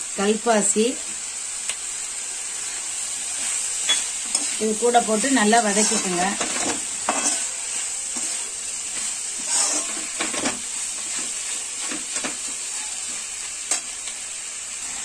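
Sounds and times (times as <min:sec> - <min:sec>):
vegetables sizzling in a pan: 0:00.0 - 0:15.0
metal spoon scraping pan: 0:03.4 - 0:11.3.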